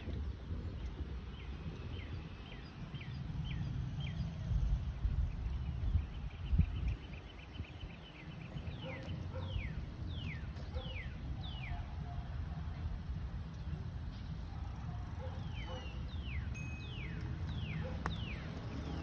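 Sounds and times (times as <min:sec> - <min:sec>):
wind rumbling on microphone: 0:00.0 - 0:19.0
bird singing whistled notes: 0:15.3 - 0:18.5.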